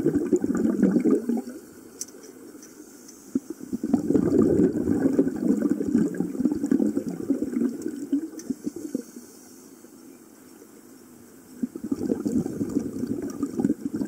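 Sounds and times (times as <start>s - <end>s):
underwater exhaled air bubbling: 0.0s - 1.7s, 3.3s - 9.2s, 11.6s - 14.0s.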